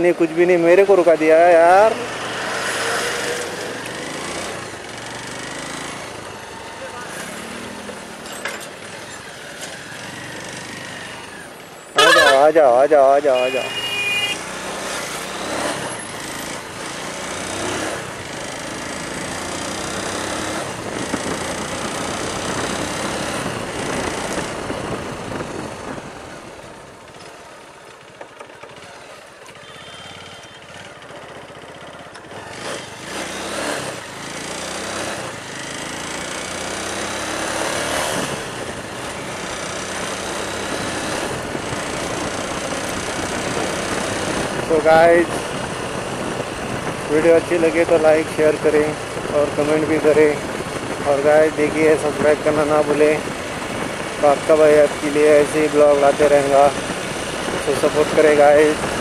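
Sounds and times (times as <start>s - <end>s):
motorcycle engine running: 1.2s - 12.5s, 13.4s - 59.0s
wind rushing over microphone: 20.0s - 27.0s, 37.4s - 59.0s.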